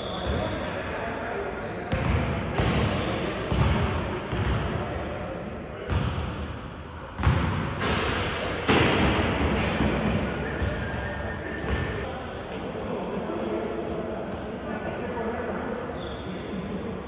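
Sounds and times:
echoing crowd voices: 0.0s - 17.0s
basketball bouncing: 1.9s - 4.7s, 7.2s - 10.8s.

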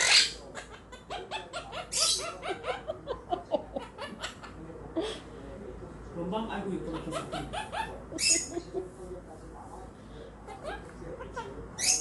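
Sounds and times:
parrot chattering: 0.0s - 2.9s, 6.8s - 8.7s, 10.5s - 12.0s.

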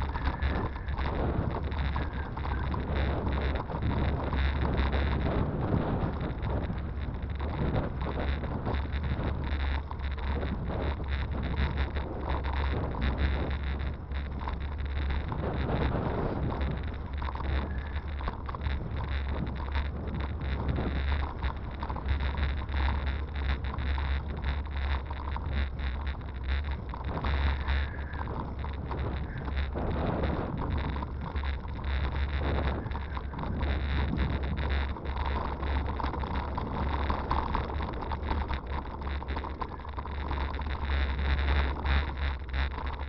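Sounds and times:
faint high whine: 0.0s - 43.0s
wind buffeting microphone: 0.0s - 43.0s.

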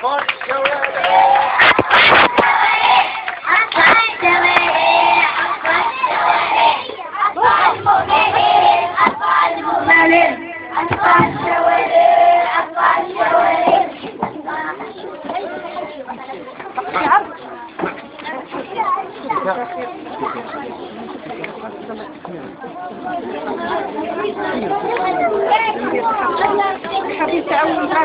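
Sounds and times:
hand claps: 0.0s - 2.6s
girls singing into microphone: 1.6s - 15.5s.

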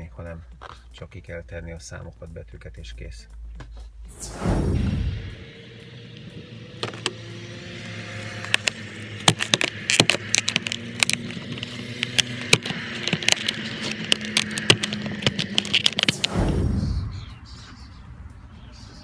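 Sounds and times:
steady low hum: 0.0s - 19.0s
plastic packaging crackling: 8.3s - 16.3s.

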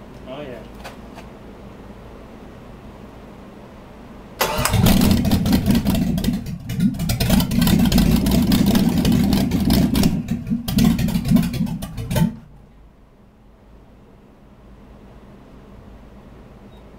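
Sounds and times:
engine revving unevenly: 4.4s - 12.6s.

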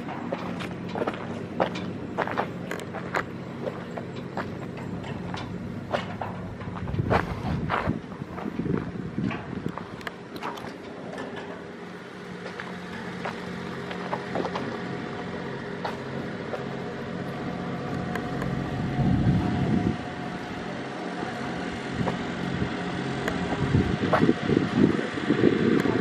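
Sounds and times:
steady mechanical hum: 0.0s - 26.0s
wind buffeting microphone: 4.4s - 10.6s, 17.5s - 26.0s.

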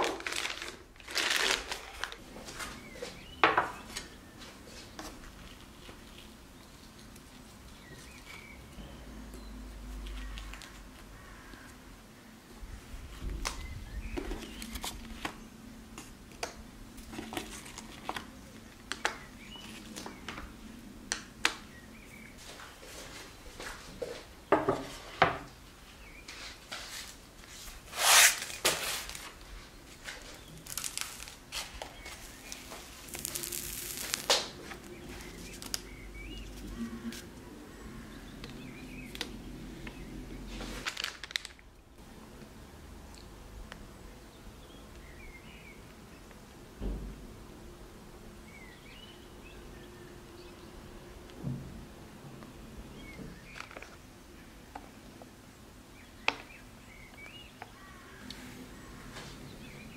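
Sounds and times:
baking paper rustling: 0.0s - 3.2s, 26.3s - 37.4s, 40.5s - 41.7s.

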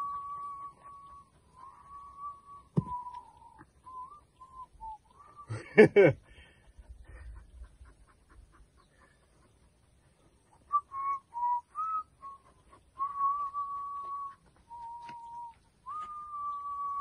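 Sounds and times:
person whistling: 0.0s - 5.6s, 10.7s - 17.0s.

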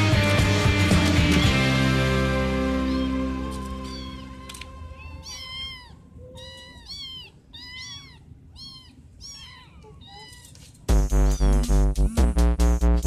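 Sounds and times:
kitten mewing: 2.8s - 12.3s.

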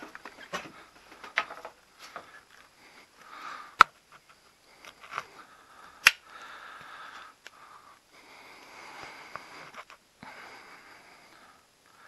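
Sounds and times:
person breathing close to microphone: 2.1s - 3.9s, 4.6s - 12.0s.

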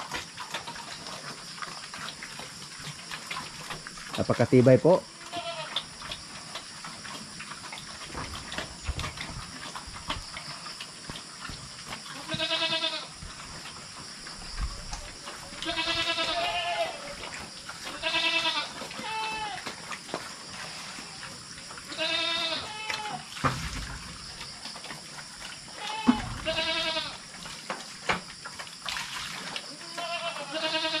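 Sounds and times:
farm animals wavering cries: 4.2s - 5.9s, 12.1s - 13.1s, 15.0s - 19.8s, 21.8s - 23.3s, 25.7s - 27.2s, 29.7s - 31.0s.

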